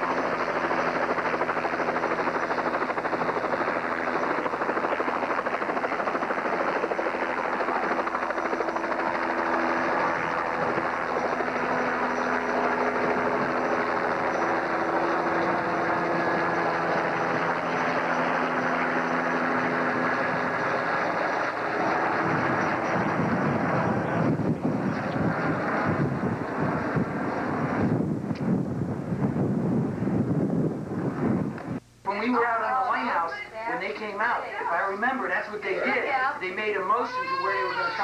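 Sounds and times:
helicopter flying overhead: 0:00.0 - 0:31.8, 0:32.4 - 0:38.0.

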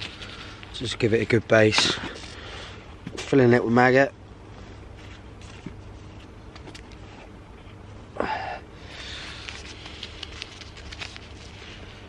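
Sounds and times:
rustling and small clicks of bag: 0:09.4 - 0:11.4.

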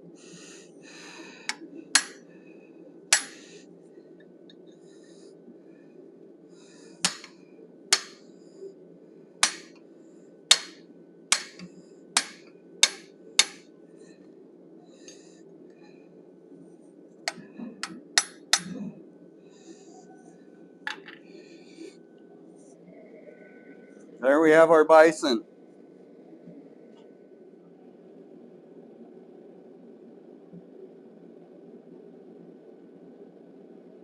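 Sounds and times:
hammer blows on metal: 0:03.1 - 0:03.4, 0:07.0 - 0:07.3, 0:07.9 - 0:08.2, 0:09.4 - 0:09.7, 0:10.5 - 0:13.6.

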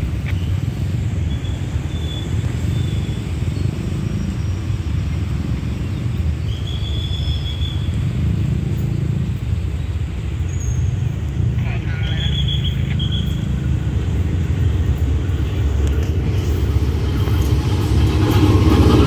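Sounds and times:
diesel train rumbling: 0:00.0 - 0:19.0.

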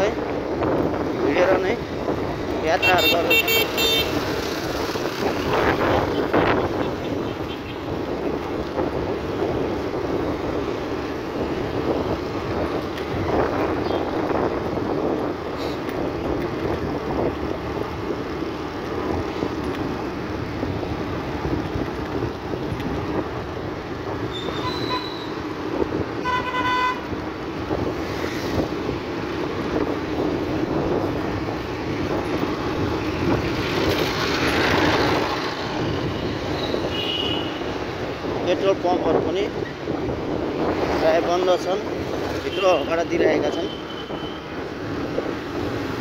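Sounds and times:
road and engine noise: 0:00.0 - 0:46.0
vehicle horn: 0:02.8 - 0:04.2, 0:24.4 - 0:25.3, 0:26.2 - 0:27.1, 0:36.8 - 0:37.6.

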